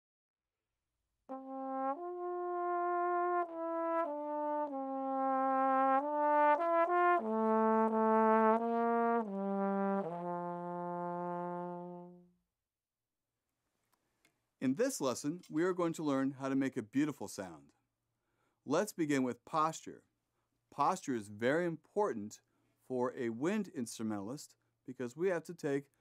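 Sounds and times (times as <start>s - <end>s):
trombone melody: 1.3s - 12.4s.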